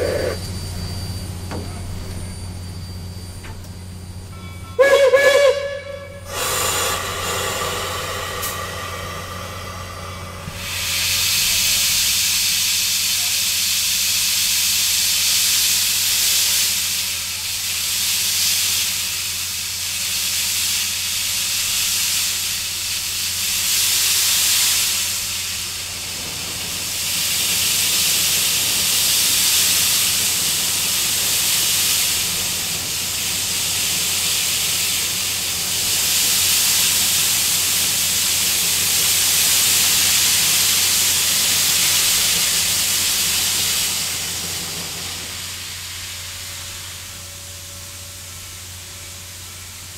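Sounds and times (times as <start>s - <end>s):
steam locomotive hissing steam: 0.0s - 49.9s
steady low hum: 5.9s - 11.6s.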